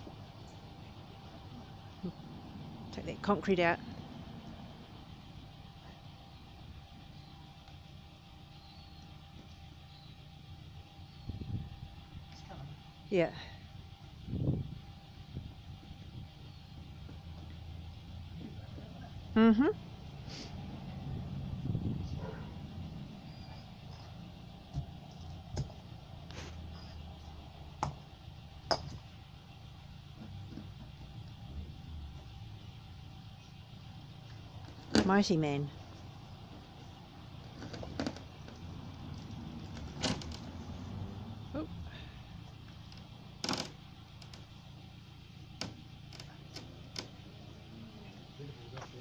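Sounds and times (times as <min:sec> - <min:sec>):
low steady rumble: 0:00.0 - 0:49.0.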